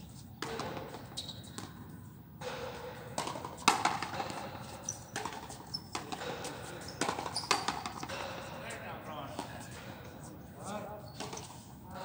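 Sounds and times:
ball smacking off racket and wall: 0:02.4 - 0:04.5, 0:05.1 - 0:08.3.

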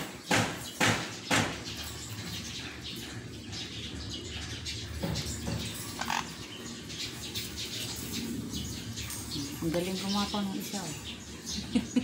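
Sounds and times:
parrots chirping: 0:00.0 - 0:12.0.

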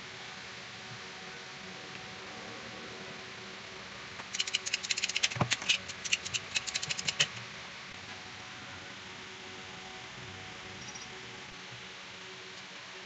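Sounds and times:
ratchet pipe cutter clicking: 0:04.2 - 0:07.4.

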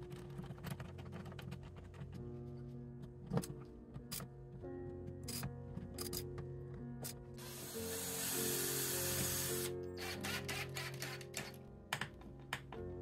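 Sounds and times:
background music: 0:00.0 - 0:13.0
cordless drill running: 0:07.4 - 0:11.2.

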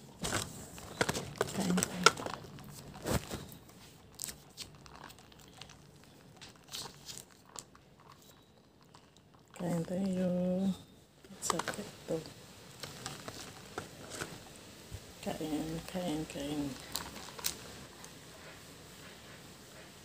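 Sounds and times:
plastic packaging crinkling: 0:00.0 - 0:14.6, 0:15.8 - 0:18.1.

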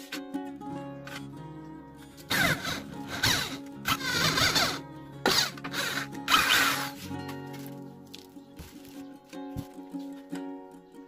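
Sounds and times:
background music: 0:00.0 - 0:11.0
electric drill boring metal: 0:02.3 - 0:07.0.

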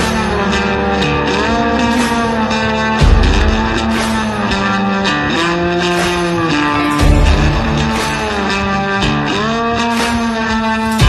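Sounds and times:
rock music with bending guitar: 0:00.0 - 0:11.0
heavy bass hit: 0:07.0 - 0:08.1.

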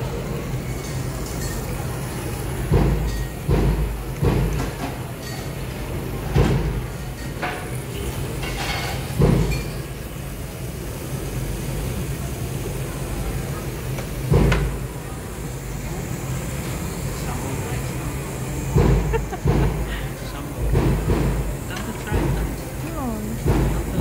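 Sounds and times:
faint chatter: 0:00.0 - 0:11.0, 0:11.7 - 0:24.0
steady low hum: 0:14.6 - 0:24.0.

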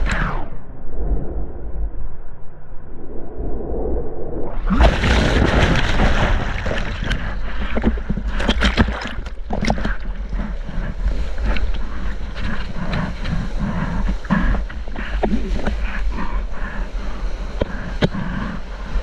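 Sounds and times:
churning underwater turbulence: 0:00.0 - 0:19.0
water splashes and bubbling pops: 0:04.5 - 0:10.4.

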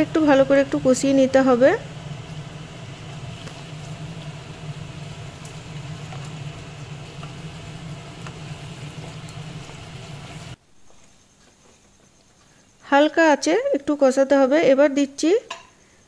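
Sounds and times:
vegetables sizzling in a pan: 0:00.0 - 0:10.6
steady low hum: 0:00.0 - 0:12.8.

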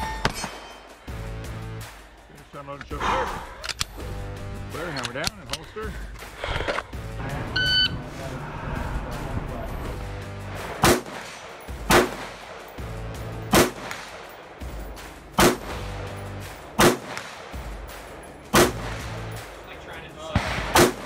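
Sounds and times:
background music: 0:00.0 - 0:21.0
rifle shots: 0:10.6 - 0:12.7, 0:13.5 - 0:14.3, 0:15.4 - 0:15.9, 0:16.7 - 0:17.6, 0:18.5 - 0:19.2, 0:20.3 - 0:21.0.

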